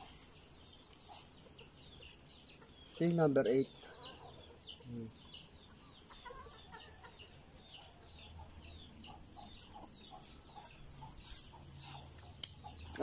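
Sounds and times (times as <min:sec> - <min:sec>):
chickens clucking: 0:00.0 - 0:13.0
small birds chirping: 0:00.0 - 0:13.0.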